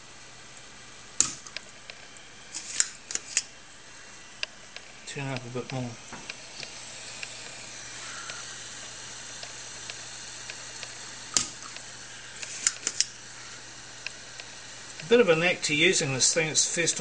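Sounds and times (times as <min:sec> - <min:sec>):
sharp click: 0:01.2 - 0:01.6, 0:12.4 - 0:13.1
hot air nozzle hissing: 0:02.4 - 0:17.0.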